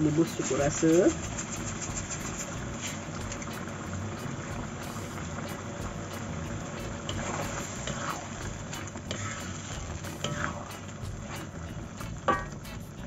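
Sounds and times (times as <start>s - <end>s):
sauce bubbling in wok: 0.0s - 13.0s
spatula scraping pan: 0.2s - 3.5s, 7.0s - 11.6s, 12.3s - 12.6s.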